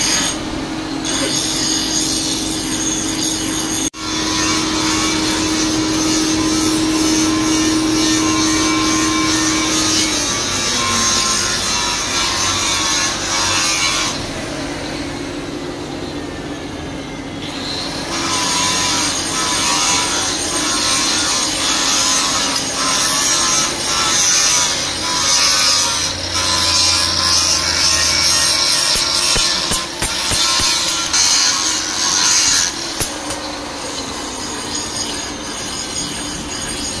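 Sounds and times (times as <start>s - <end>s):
hammer strokes on metal: 18.2s - 37.0s.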